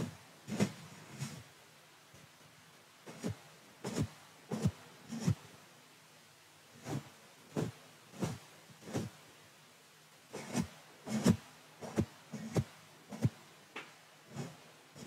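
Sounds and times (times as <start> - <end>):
brush swishing across microphone: 0.0 - 1.5, 3.1 - 5.4, 6.8 - 9.2, 10.3 - 13.4, 14.3 - 15.0.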